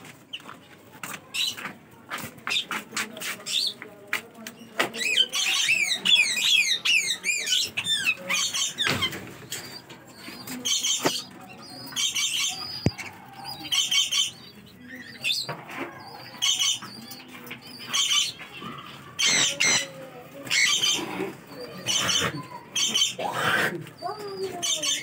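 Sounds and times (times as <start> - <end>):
parrots chirping shrilly: 5.0 - 17.2, 17.8 - 19.9, 20.5 - 21.2, 21.8 - 23.7
parrots screeching: 17.8 - 19.9, 20.5 - 21.2, 21.8 - 23.7.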